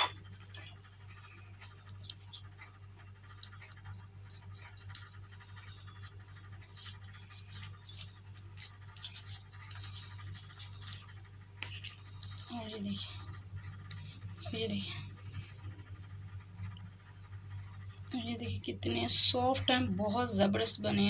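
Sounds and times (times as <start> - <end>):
steady low hum: 0.0 - 21.0
paper liner crinkling: 4.3 - 12.4.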